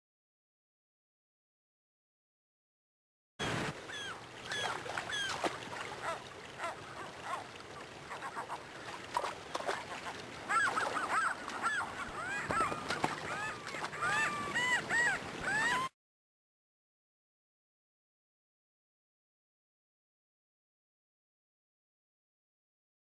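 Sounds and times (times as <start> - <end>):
gulls calling: 3.4 - 16.0.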